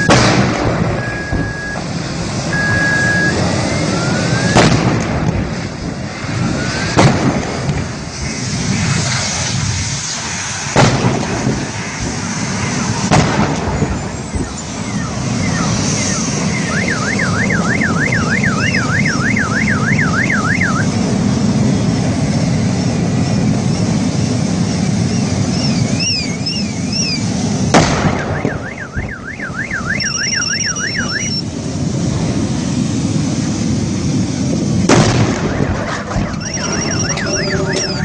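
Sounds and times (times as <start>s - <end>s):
explosion bangs: 0.0s - 2.5s, 4.2s - 9.7s, 10.7s - 14.2s, 27.6s - 29.2s, 34.8s - 38.0s
car alarm: 1.0s - 1.8s, 2.5s - 4.6s, 14.4s - 20.9s, 28.2s - 31.4s, 36.2s - 38.0s.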